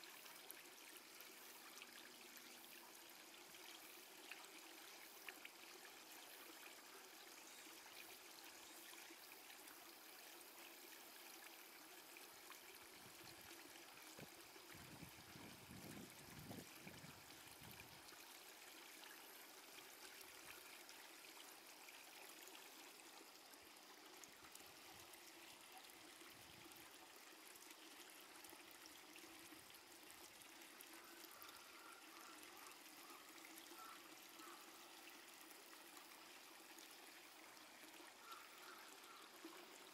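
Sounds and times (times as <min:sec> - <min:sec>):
faint steady hiss: 0:00.0 - 0:39.9.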